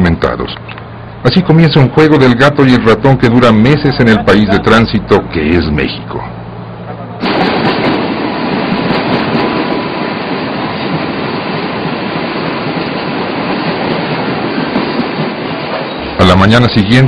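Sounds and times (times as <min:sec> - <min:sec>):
freight train wagons rolling on rails: 0:00.0 - 0:17.0.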